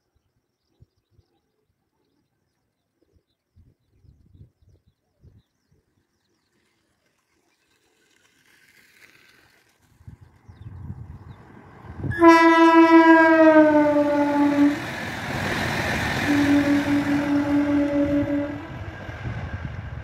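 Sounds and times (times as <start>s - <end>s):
electric train running hiss: 13.8s - 20.0s.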